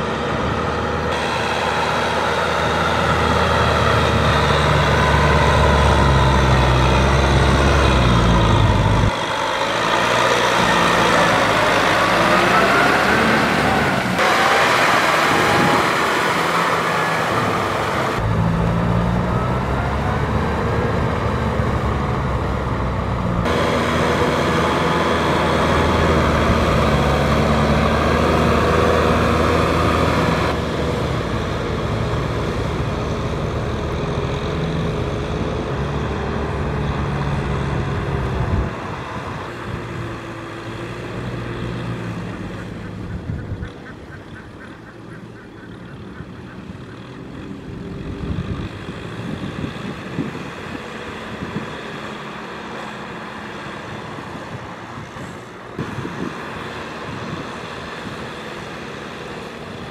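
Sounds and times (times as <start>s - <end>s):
tiller churning mud: 0.0s - 18.2s
tractor diesel engine: 0.0s - 59.9s.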